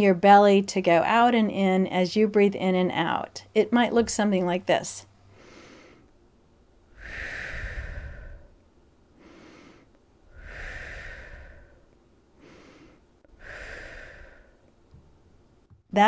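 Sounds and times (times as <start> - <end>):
woman breathing deeply: 5.2 - 6.2, 6.8 - 14.8.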